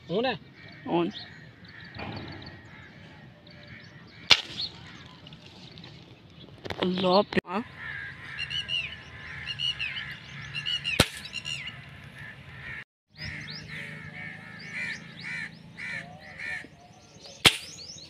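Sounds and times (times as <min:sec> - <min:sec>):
crows cawing: 0:00.6 - 0:05.3, 0:07.6 - 0:16.8
air rifle shot: 0:11.0 - 0:11.3, 0:17.4 - 0:17.9.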